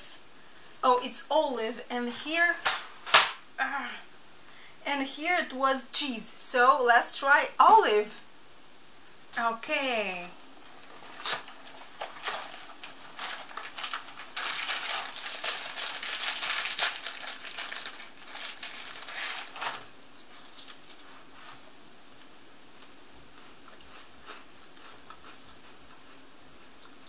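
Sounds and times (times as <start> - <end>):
wrapper crinkling and tearing: 10.6 - 21.1.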